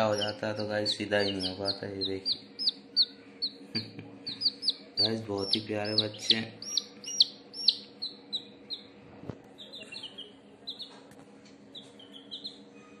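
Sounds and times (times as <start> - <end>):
chicks peeping: 0.0 - 13.0.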